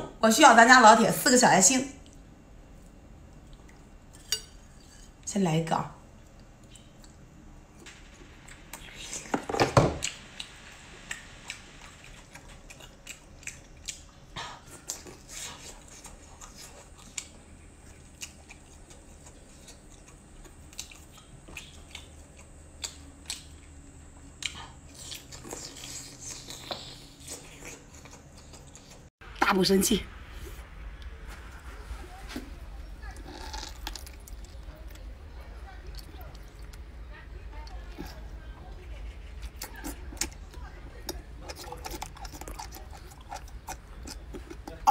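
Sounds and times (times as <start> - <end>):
chewing with wet mouth clicks: 2.0 - 3.9, 6.2 - 7.3, 10.0 - 29.1, 39.4 - 44.9.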